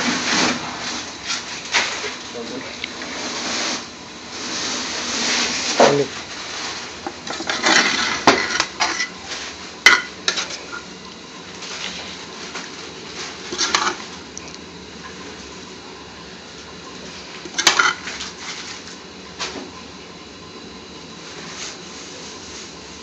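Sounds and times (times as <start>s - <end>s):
metal spoon scraping a pot: 7.2s - 9.2s, 13.5s - 14.0s, 17.5s - 18.1s.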